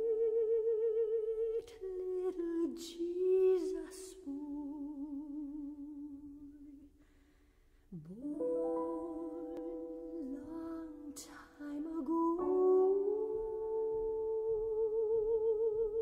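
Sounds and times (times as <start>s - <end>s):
person singing slowly: 7.9s - 16.0s.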